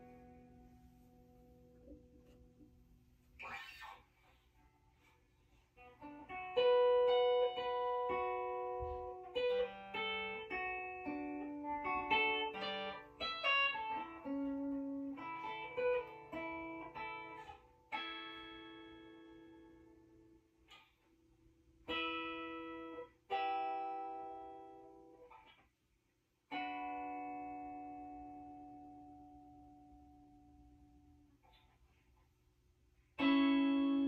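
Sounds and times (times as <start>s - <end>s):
electric guitar plucked notes: 0.0s - 3.9s, 5.8s - 25.7s, 26.5s - 31.8s, 33.2s - 34.0s
guitar chord ringing out: 5.8s - 20.4s, 33.2s - 34.0s.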